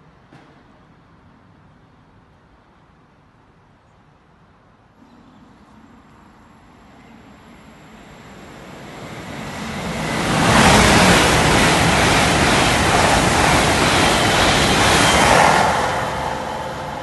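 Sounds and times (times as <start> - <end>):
trains passing at speed: 4.4 - 17.0.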